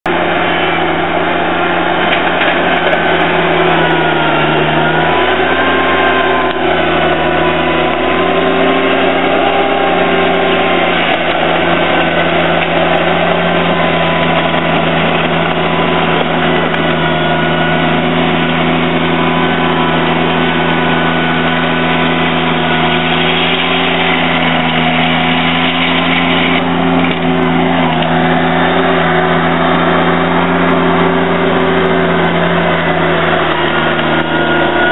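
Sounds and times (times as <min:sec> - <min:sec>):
tractor engine running: 0:00.0 - 0:34.9.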